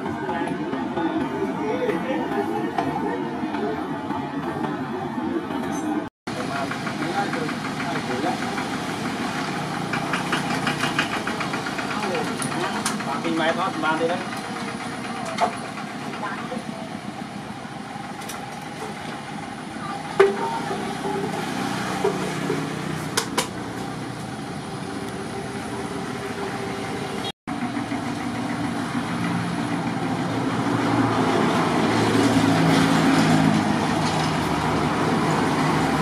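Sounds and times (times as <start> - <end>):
truck passing: 0.0 - 36.0
walking tractor engine hum: 6.3 - 36.0
sharp knocks: 20.2 - 23.6.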